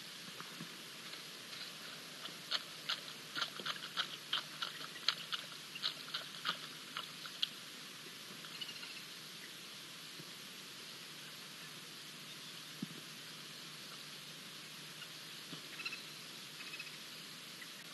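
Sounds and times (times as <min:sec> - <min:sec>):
dog lapping water: 0:02.2 - 0:07.4.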